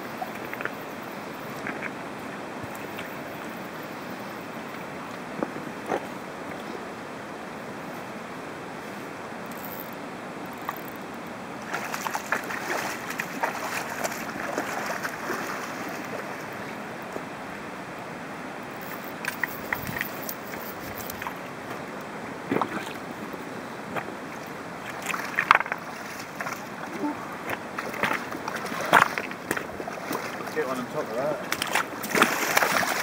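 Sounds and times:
fast-flowing river rushing: 11.3 - 33.0
water splashing: 11.6 - 17.6, 18.7 - 23.3, 24.0 - 33.0.

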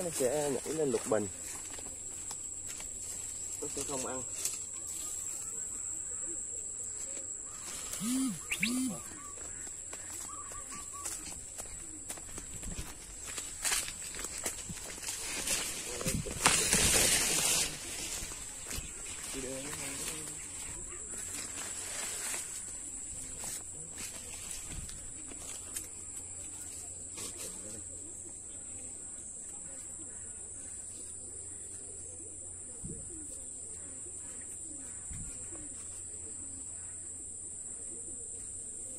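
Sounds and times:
insects droning: 0.0 - 38.9
high-pitched insect drone: 7.5 - 9.6
bird chirps: 7.5 - 11.3
low rising and falling calls: 7.8 - 9.4.

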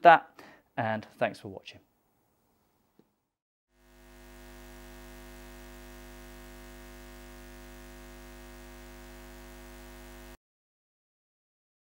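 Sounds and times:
electrical hum: 3.8 - 10.4.

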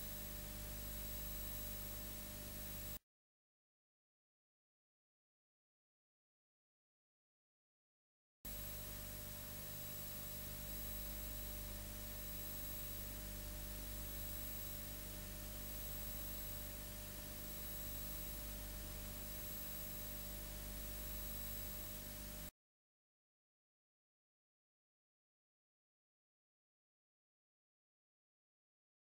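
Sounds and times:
film transfer hiss and hum: 8.5 - 22.5.

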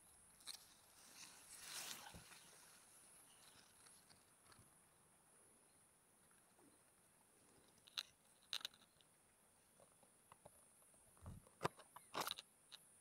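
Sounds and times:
long grass rustling: 0.0 - 5.0
steady high-pitched hiss: 0.0 - 13.0
leaves crackling: 0.4 - 4.6.

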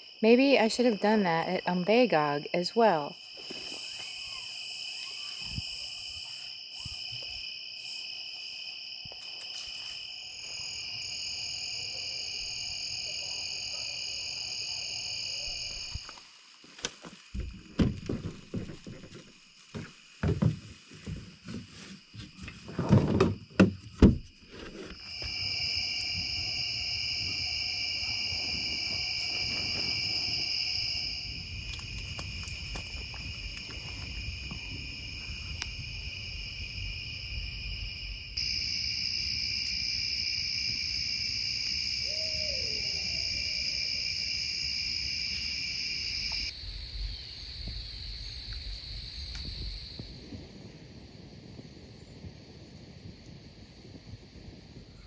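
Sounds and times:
night insects chirping: 0.0 - 55.0
knocks and thumps: 17.3 - 24.8.

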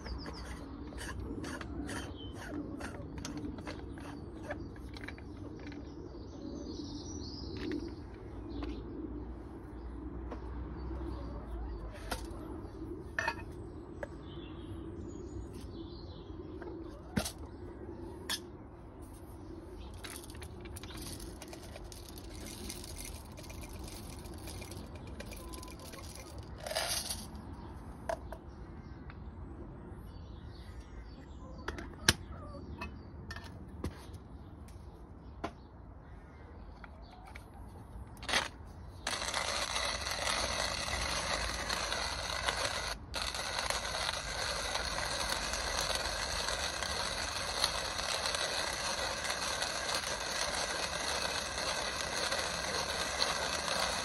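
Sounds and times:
coffee grinder crunching beans: 20.0 - 27.3, 38.2 - 54.0.

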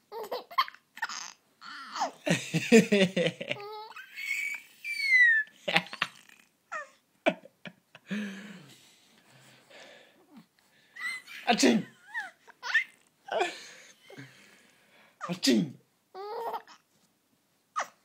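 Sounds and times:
baby laughing: 0.1 - 7.0, 11.0 - 13.6, 16.2 - 16.8.

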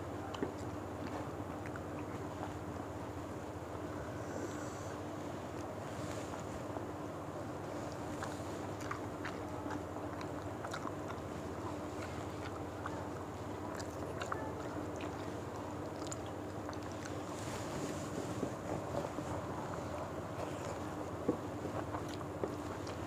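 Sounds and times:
steady low hum: 0.0 - 23.0
chewing and mouth smacks: 0.2 - 2.9, 7.6 - 23.0.

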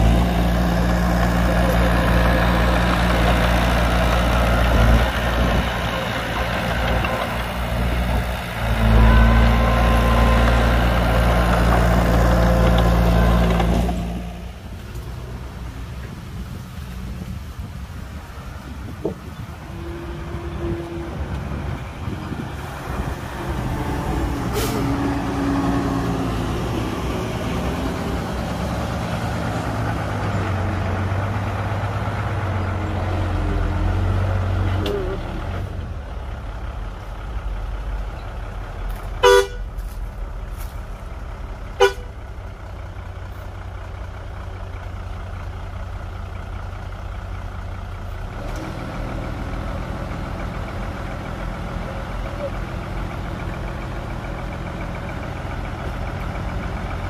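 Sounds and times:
heavy diesel engines running: 0.0 - 57.0
vehicle horn toots: 39.2 - 39.7, 41.8 - 42.1.

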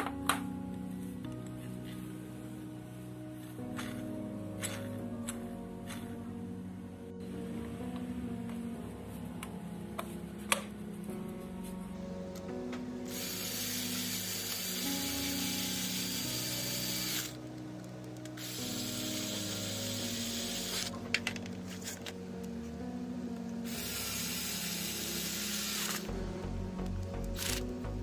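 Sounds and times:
cordless drill driving screws: 13.1 - 17.4, 23.7 - 26.1.

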